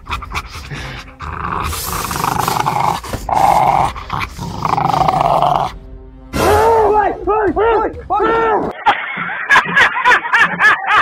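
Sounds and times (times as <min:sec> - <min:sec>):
dog growling: 0:00.0 - 0:05.8.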